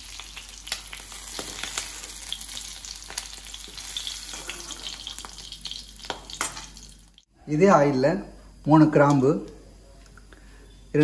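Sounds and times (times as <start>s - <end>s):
vegetables sizzling in oil: 0.0s - 7.3s.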